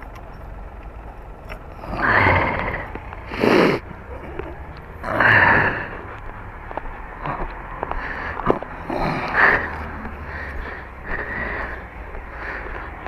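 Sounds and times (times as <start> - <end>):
car hum: 0.0 - 13.0
person breathing close to microphone: 1.8 - 6.2, 7.2 - 13.0
person sniffing: 2.0 - 4.4.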